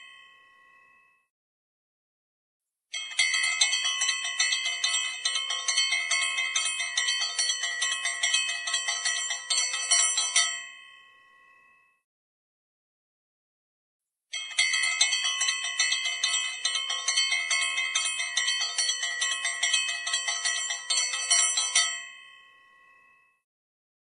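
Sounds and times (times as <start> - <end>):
hand bell rung rapidly: 3.0 - 10.7, 14.4 - 22.2.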